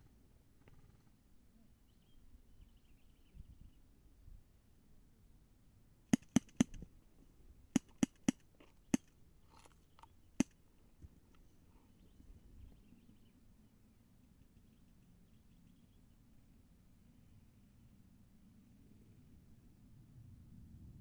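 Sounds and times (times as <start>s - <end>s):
airsoft pistol shots: 6.1s - 6.8s, 7.8s - 9.1s.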